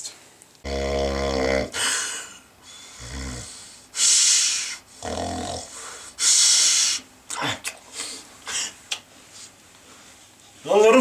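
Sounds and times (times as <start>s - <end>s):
man snoring: 0.6s - 2.0s, 2.8s - 3.6s, 5.0s - 5.7s.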